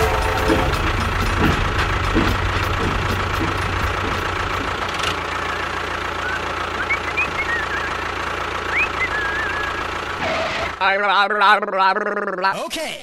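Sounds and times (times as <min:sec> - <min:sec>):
high wavering chirps: 0:08.7 - 0:09.8.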